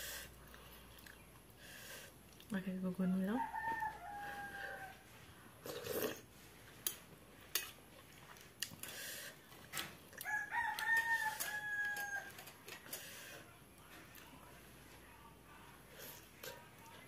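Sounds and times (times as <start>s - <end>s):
rooster crowing: 3.2s - 5.1s, 10.2s - 12.5s
crunching eating sound: 5.6s - 14.6s.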